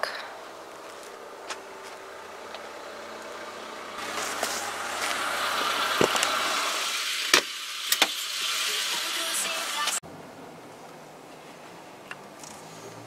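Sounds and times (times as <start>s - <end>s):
car rushing noise: 1.2s - 7.6s.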